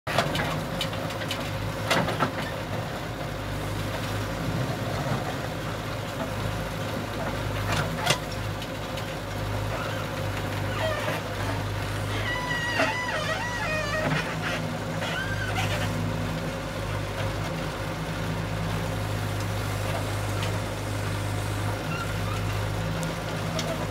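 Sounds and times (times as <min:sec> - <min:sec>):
diesel engine running: 0:00.1 - 0:23.9
backhoe arm digging earth: 0:09.7 - 0:16.3.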